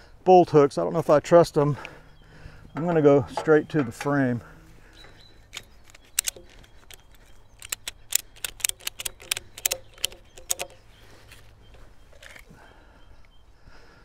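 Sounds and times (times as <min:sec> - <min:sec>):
tie-down strap ratchet clicking: 0:05.5 - 0:10.8.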